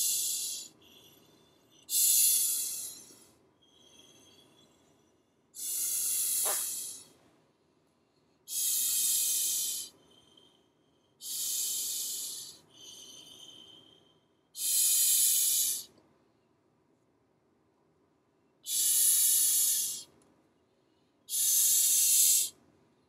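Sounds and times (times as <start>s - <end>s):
hissing puffs of breath into nozzle: 0.0s - 0.8s, 1.9s - 3.4s, 5.6s - 7.2s, 8.5s - 10.0s, 11.2s - 13.1s, 14.6s - 15.9s, 18.7s - 20.1s, 21.3s - 22.6s.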